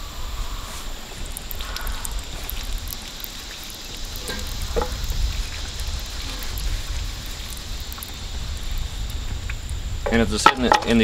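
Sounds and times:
crackling hiss: 0.0s - 11.0s
low rumble: 3.8s - 11.0s.

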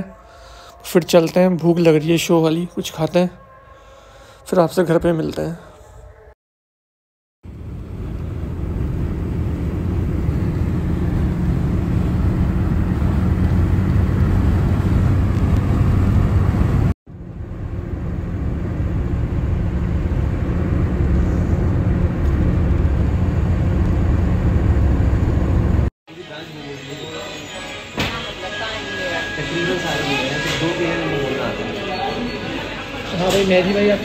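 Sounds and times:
car cabin road and engine noise: 7.5s - 25.9s.

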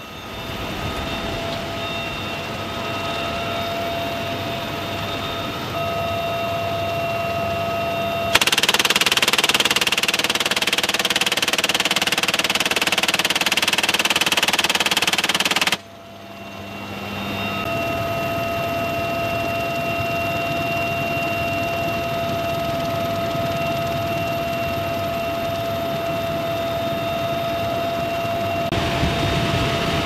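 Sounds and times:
helicopter whine in flight: 0.0s - 30.0s
minigun firing burst: 8.3s - 15.9s.

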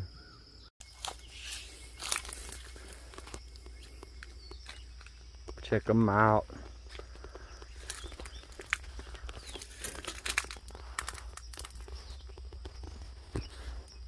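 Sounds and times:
dry brush crackling underfoot: 0.8s - 14.0s.

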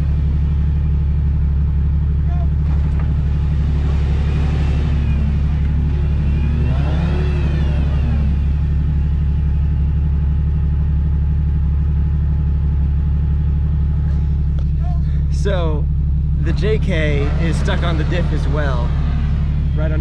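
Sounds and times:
engine idling: 0.0s - 20.0s
engine revving: 2.2s - 10.4s, 14.0s - 20.0s.

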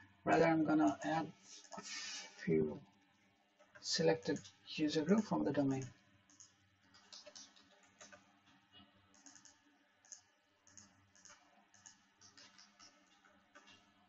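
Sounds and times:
mouse and keyboard clicks: 5.8s - 8.2s, 9.1s - 13.9s.

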